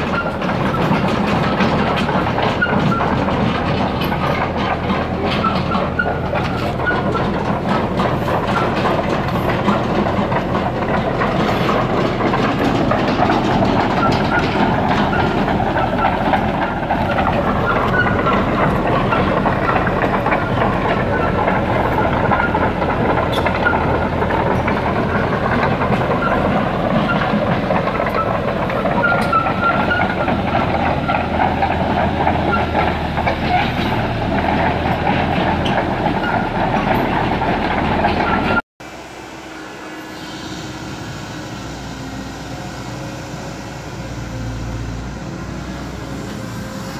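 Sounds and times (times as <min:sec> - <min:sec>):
track links clattering: 0:00.0 - 0:38.6
diesel engine running: 0:00.0 - 0:46.9
high squeaks: 0:04.1 - 0:10.0, 0:11.4 - 0:25.3, 0:28.0 - 0:31.4.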